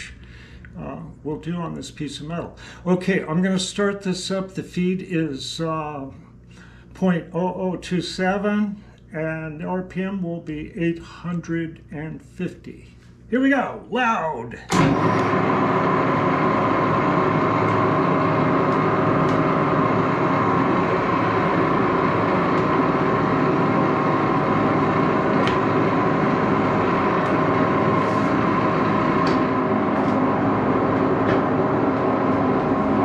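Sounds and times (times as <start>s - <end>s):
lathe humming: 14.7s - 33.0s.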